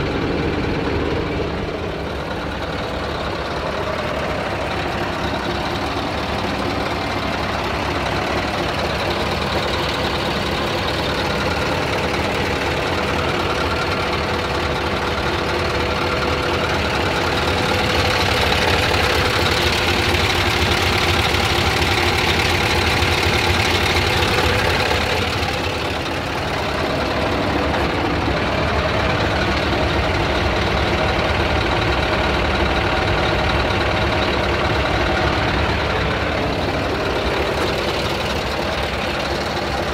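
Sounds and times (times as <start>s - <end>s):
truck diesel engine idling: 0.0s - 39.9s.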